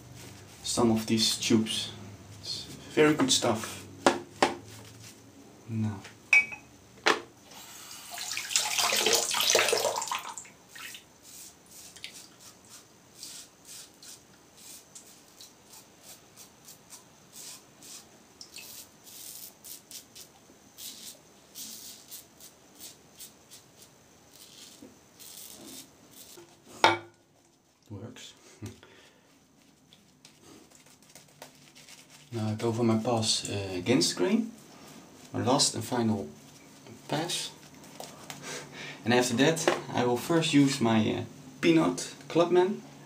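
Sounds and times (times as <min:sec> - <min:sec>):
razor scraping stubble: 0:18.6 - 0:26.5.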